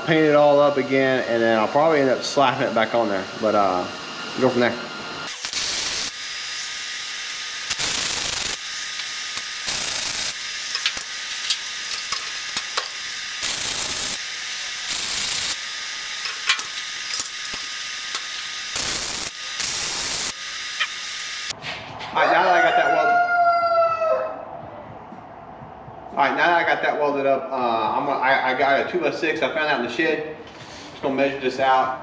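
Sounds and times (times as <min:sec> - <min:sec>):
welding arc crackling and hissing: 0:05.2 - 0:21.6.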